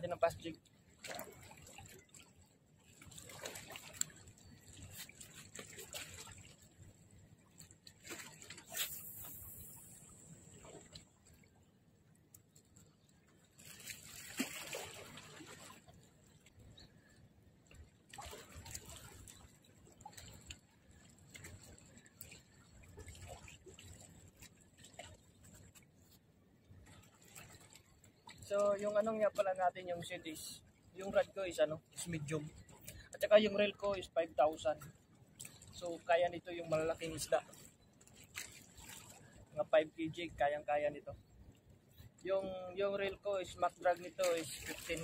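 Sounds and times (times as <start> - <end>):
water trickling and lapping: 0.0 - 45.0
small clicks and ticks: 12.1 - 13.9, 19.3 - 26.2.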